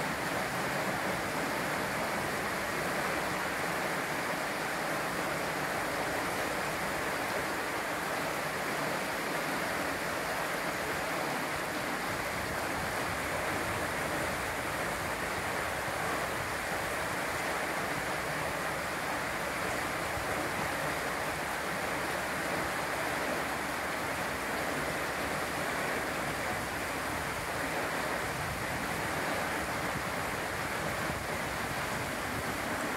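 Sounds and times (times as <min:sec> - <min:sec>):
river water rushing over rocks: 0:00.0 - 0:32.9.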